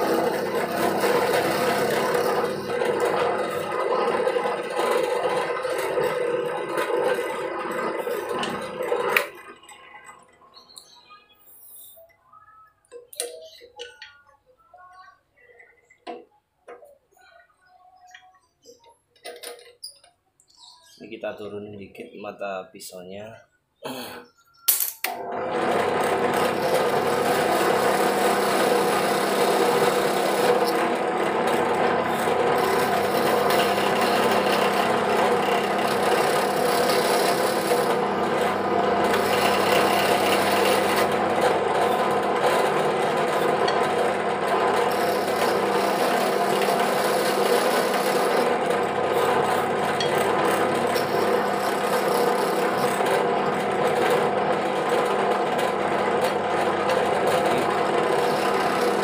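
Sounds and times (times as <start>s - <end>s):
drill bit rasping into hardwood: 0.0s - 9.3s, 25.6s - 59.0s
motor hum: 0.0s - 10.8s, 25.2s - 59.0s.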